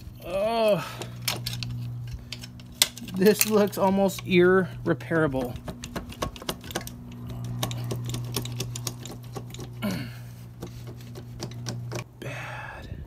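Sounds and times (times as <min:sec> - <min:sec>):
steady low hum: 0:00.0 - 0:13.0
hands clicking on metal parts: 0:00.6 - 0:04.4, 0:05.2 - 0:09.8, 0:10.6 - 0:12.1.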